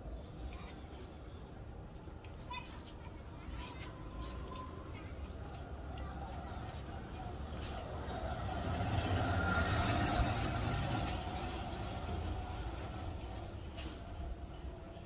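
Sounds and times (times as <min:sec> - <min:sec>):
vehicle passing with engine rumble: 0:07.8 - 0:13.7.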